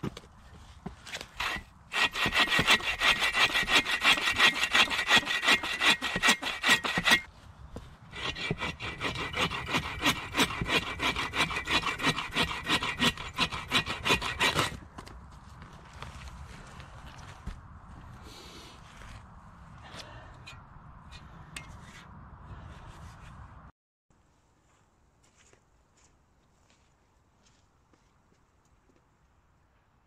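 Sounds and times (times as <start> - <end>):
saw cutting wood: 1.1 - 7.3, 8.1 - 14.8.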